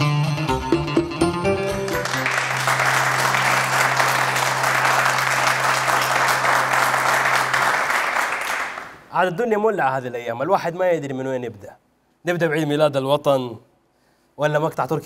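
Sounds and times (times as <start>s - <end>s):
audience applauding: 1.7s - 9.1s.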